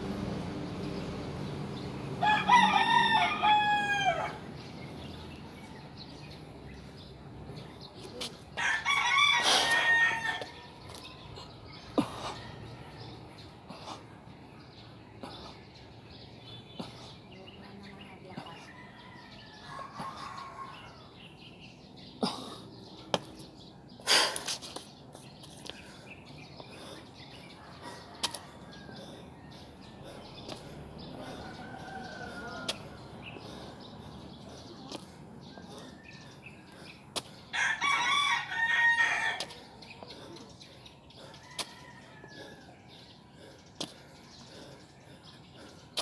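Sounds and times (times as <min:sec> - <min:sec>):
rooster crowing: 0:02.2 - 0:04.4, 0:08.6 - 0:10.7, 0:37.6 - 0:39.5.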